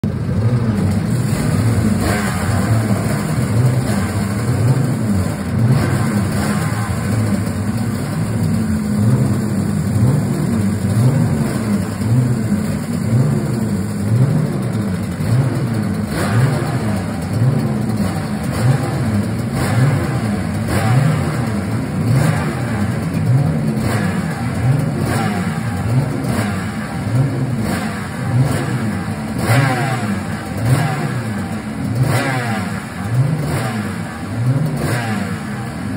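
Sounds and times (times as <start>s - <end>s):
racing engine revving: 0.2s - 35.9s.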